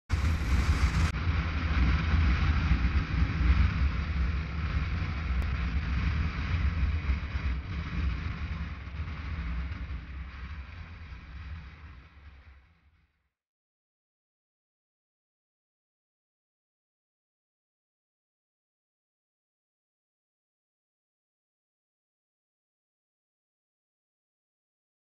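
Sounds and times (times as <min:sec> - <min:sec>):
wind rushing: 0:00.0 - 0:05.5
motorcycle rumble: 0:00.0 - 0:12.2.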